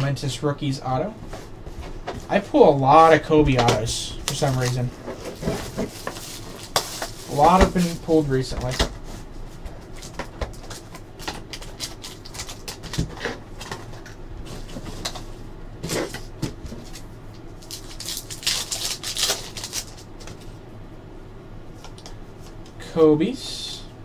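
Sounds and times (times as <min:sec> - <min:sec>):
foil wrapper crinkling: 0:04.3 - 0:08.8, 0:09.9 - 0:14.1, 0:16.8 - 0:20.3.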